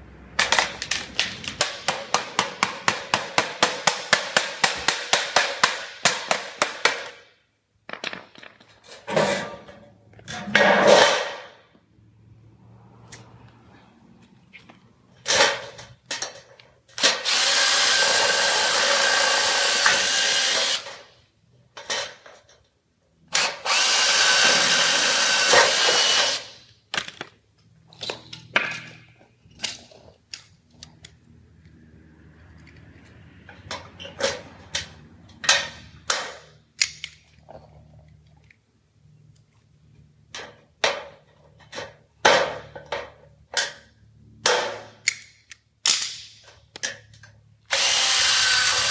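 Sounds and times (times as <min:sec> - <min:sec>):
cordless drill drilling metal: 0:17.0 - 0:21.0, 0:23.4 - 0:26.5, 0:47.7 - 0:48.9
tools and metal clicking: 0:26.9 - 0:31.8, 0:32.4 - 0:38.6, 0:44.5 - 0:47.4.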